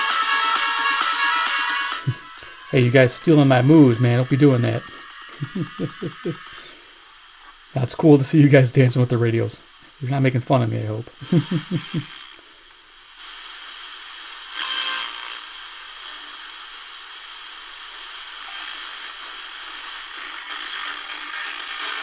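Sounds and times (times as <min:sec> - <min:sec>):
radio static hiss: 0:00.0 - 0:22.0
man laughing: 0:01.9 - 0:06.8, 0:11.2 - 0:12.2.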